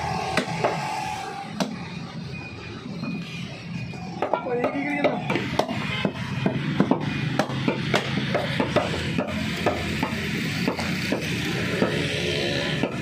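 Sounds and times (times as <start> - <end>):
cleaver chopping on wooden block: 5.0 - 12.0.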